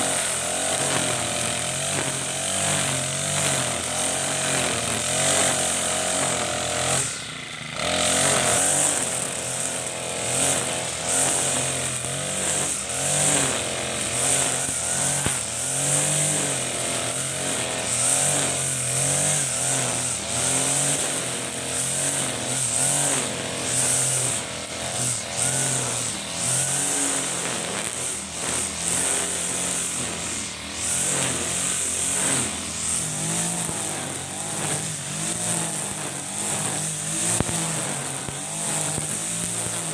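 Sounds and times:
brush cutter engine running: 0.0 - 39.9
trimmer line whipping grass: 0.0 - 39.9.

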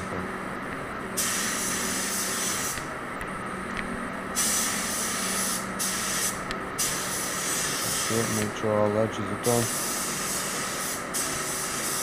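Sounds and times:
spray gun hissing: 1.2 - 2.8, 4.4 - 8.5, 9.4 - 12.0.

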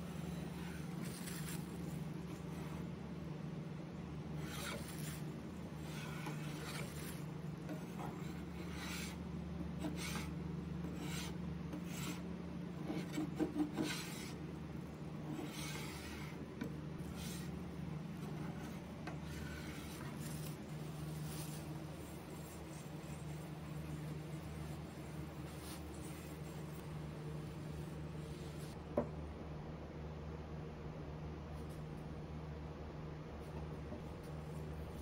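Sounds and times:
steady low hum: 0.0 - 35.0
putty knife scraping paint off wood: 4.4 - 9.2.

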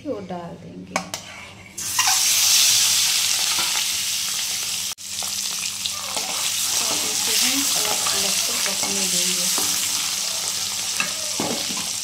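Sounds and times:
eggs sizzling in hot oil: 1.8 - 12.0
metal spatula stirring: 6.2 - 11.2.

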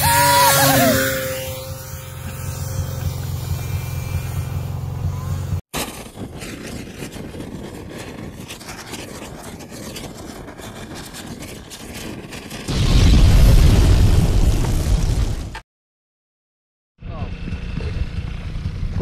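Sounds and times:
snowmobile engine running: 0.0 - 12.5, 17.0 - 19.0.

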